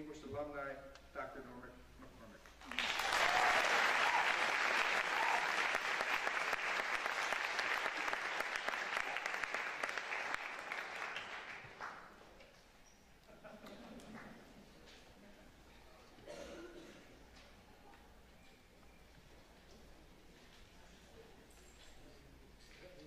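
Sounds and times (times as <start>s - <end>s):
audience applauding: 2.6s - 12.1s.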